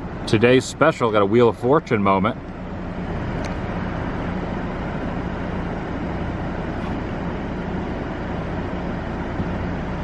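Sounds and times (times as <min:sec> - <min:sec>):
low mechanical hum: 0:00.0 - 0:10.0
road traffic noise: 0:00.0 - 0:10.0.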